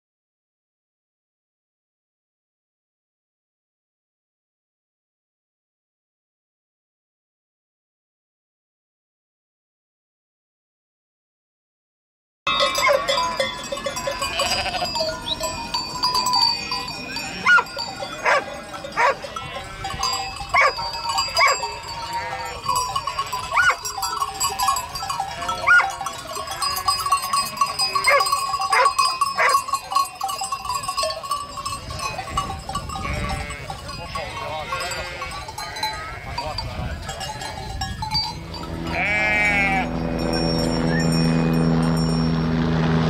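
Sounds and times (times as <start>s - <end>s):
sheep bleating: 12.5s - 15.4s, 16.4s - 23.9s, 24.8s - 27.4s, 33.0s - 36.6s, 38.8s - 40.4s
sheep bells clanking: 12.5s - 42.8s.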